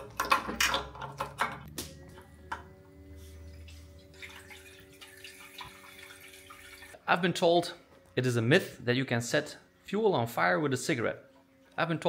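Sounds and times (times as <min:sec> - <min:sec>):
hose clicking and knocking: 0:00.0 - 0:01.8
fuel trickling into tank: 0:03.5 - 0:07.0.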